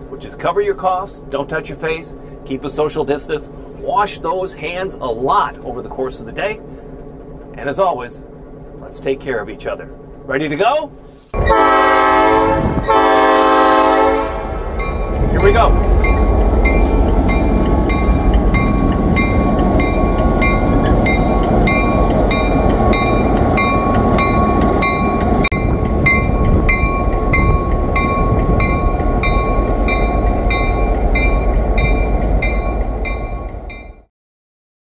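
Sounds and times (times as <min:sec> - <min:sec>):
diesel locomotive engine rumble: 0:00.0 - 0:34.1
locomotive bell ringing: 0:12.9 - 0:34.1.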